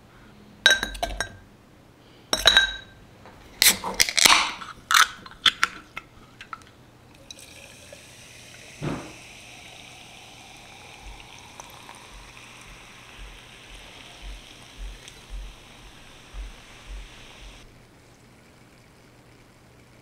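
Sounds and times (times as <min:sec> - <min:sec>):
glass clinks: 0:02.4 - 0:03.0
sparkling water pouring and fizzing: 0:07.1 - 0:20.0.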